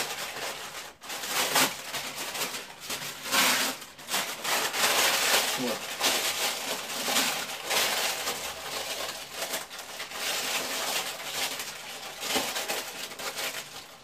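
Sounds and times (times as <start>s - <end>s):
baking paper crinkling: 0.0s - 14.0s.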